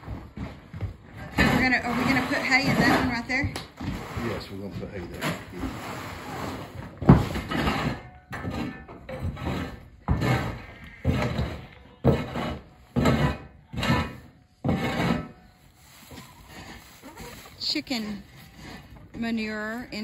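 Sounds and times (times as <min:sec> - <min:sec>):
broom sweeping gravel floor: 0:15.2 - 0:19.0.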